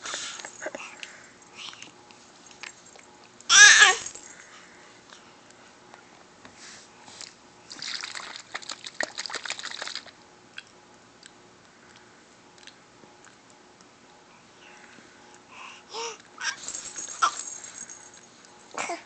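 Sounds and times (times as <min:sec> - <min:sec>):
baby squealing: 0:03.5 - 0:04.1.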